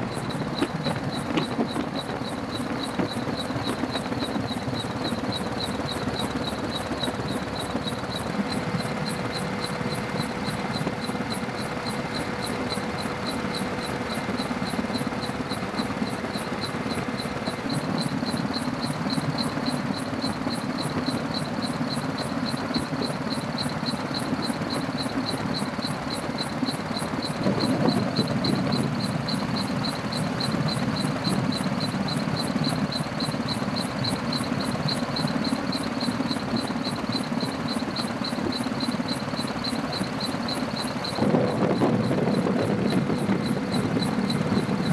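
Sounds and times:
aircraft engine drone: 0.0 - 44.9
fast even pulsing: 36.3 - 44.9.

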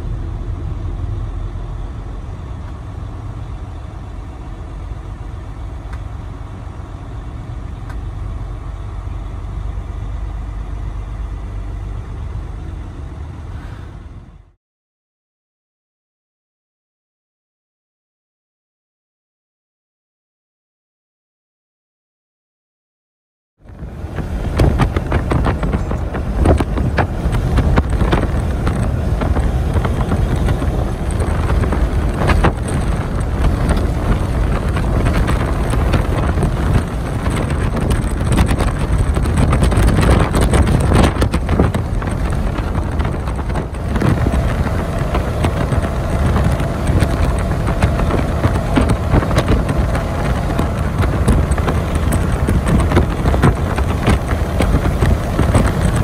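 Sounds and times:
road and wind noise in truck cab: 0.0 - 14.6, 23.6 - 56.0
rattles and knocks: 24.1 - 56.0.

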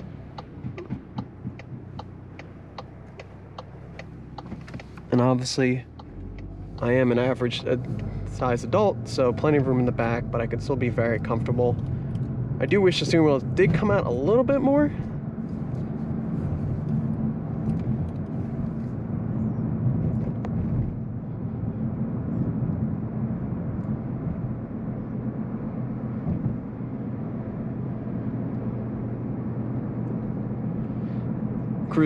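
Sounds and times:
car engine: 0.0 - 32.0
road and tyre rumble in car cabin: 0.0 - 32.0.

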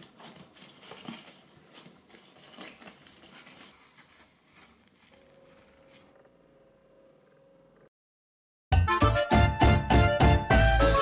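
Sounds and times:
faint rustling and crackling: 0.0 - 6.6.

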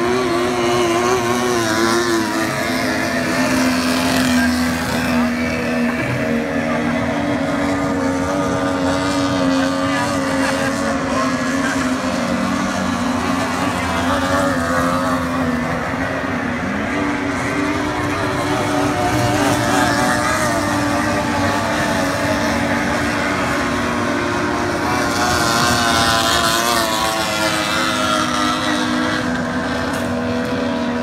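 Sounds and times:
powerboat outboard engines droning: 0.0 - 31.0.

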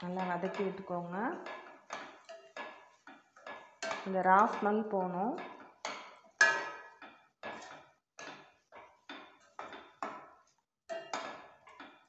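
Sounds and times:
metal spatula scraping a pan: 0.0 - 12.0.

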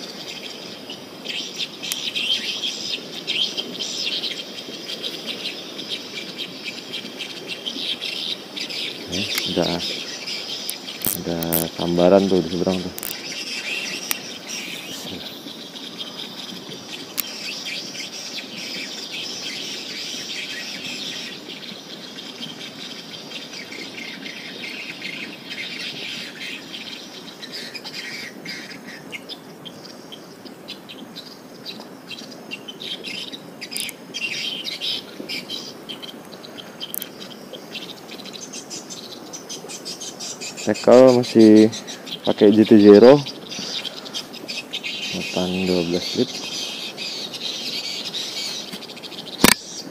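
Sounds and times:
insects trilling: 0.0 - 49.9
swiftlets twittering: 9.0 - 15.4.

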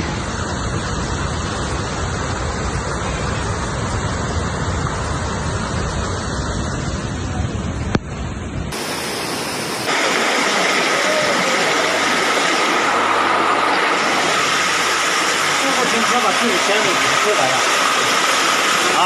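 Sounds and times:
rushing floodwater: 8.7 - 19.0.

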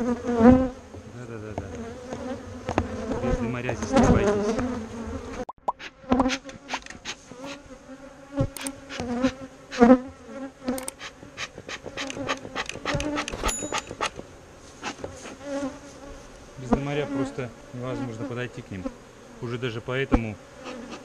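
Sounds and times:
bees buzzing: 0.0 - 21.0
sharp clicks and knocks: 10.8 - 14.3.

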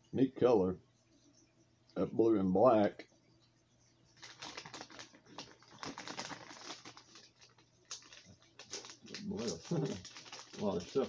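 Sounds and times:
plastic packages crinkling: 4.2 - 11.0.

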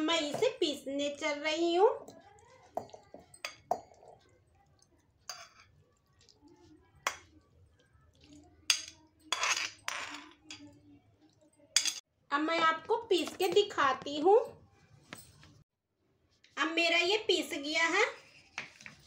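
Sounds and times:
metal spoon clinking on pan: 2.8 - 4.3, 5.3 - 5.8, 8.7 - 10.8, 11.7 - 12.0.

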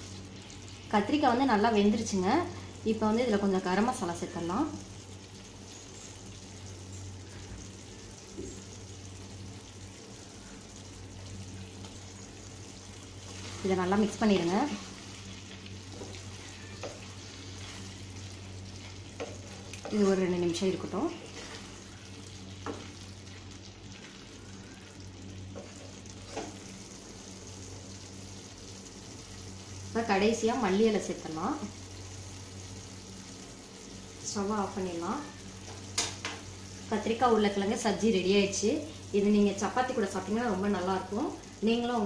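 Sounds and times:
gravy sizzling: 0.0 - 42.0
steady low hum: 0.0 - 42.0
spatula stirring: 12.9 - 20.3, 21.1 - 26.9.

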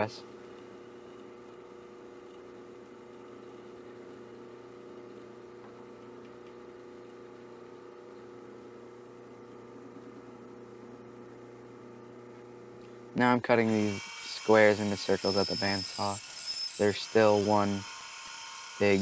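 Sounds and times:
drill press motor hum: 0.0 - 19.0
drill bit boring through plywood: 13.6 - 19.0.

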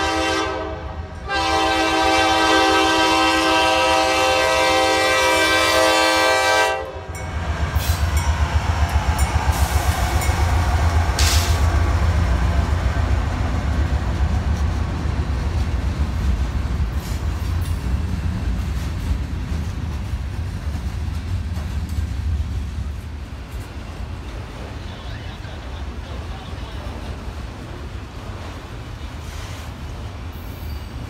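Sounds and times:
train horn chord: 0.0 - 7.2
locomotive engine rumble: 0.0 - 31.0
wheels clattering on rails: 7.2 - 31.0.

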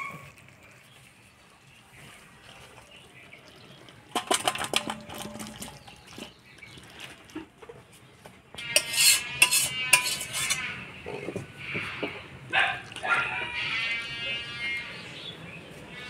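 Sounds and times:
metal spoon scraping a pot: 4.1 - 6.4, 8.5 - 14.4.

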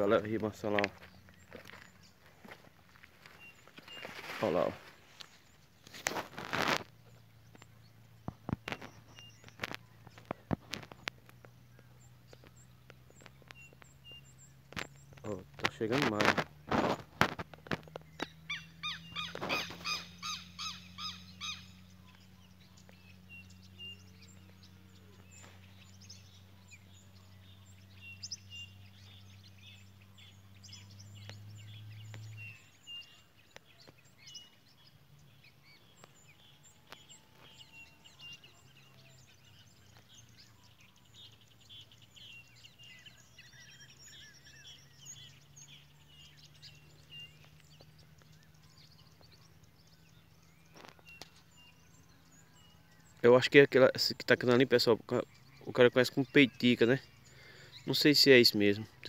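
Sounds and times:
birds chirping and singing: 0.0 - 59.0
loud repeated bird call: 13.5 - 24.1.

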